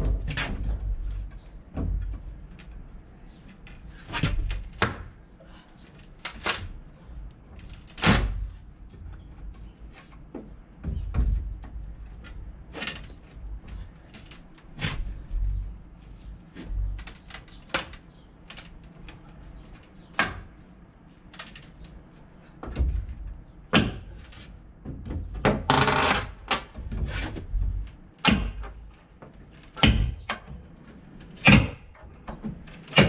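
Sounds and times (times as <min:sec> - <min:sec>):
hammer knocking on wooden boards: 0:10.2 - 0:12.1.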